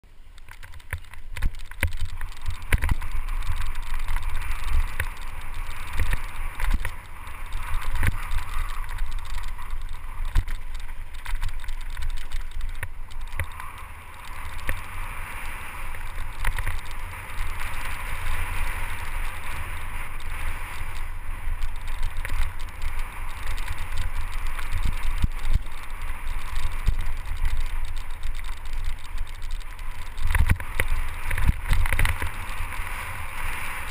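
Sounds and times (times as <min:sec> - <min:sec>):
bike knocking and rattling: 0:00.2 - 0:33.9.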